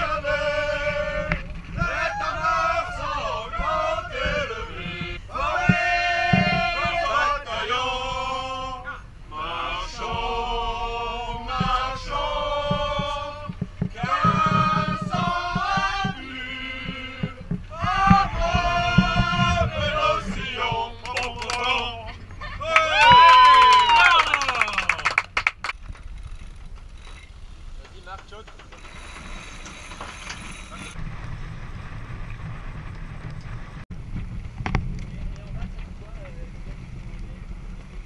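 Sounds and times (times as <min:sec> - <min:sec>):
group of people singing: 0:00.0 - 0:22.3
wind rumbling on microphone: 0:00.0 - 0:24.2, 0:29.9 - 0:38.0.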